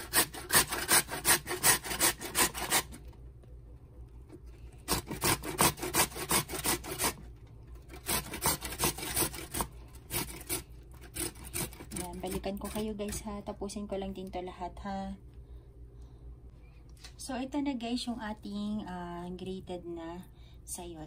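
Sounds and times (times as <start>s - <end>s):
vegetable rasping on metal grater: 0.0s - 3.0s, 4.8s - 7.2s, 7.9s - 13.2s.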